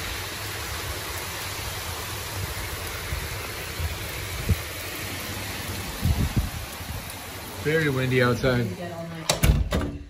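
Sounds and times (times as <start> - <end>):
steady hiss of rain: 0.0 - 10.0
wind buffeting microphone: 2.3 - 4.8, 5.7 - 7.2.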